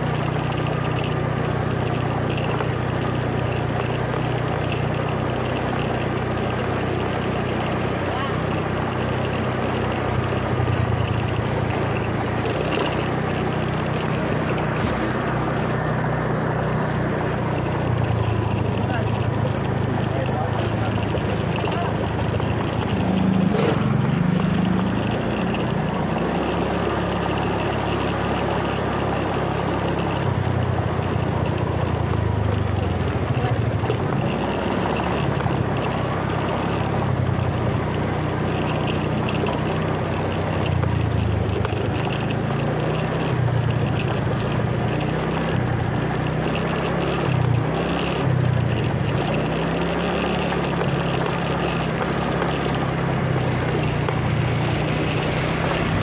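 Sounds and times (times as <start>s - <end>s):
motorcycle engine running: 0.0s - 56.0s
wind and road noise: 0.0s - 56.0s.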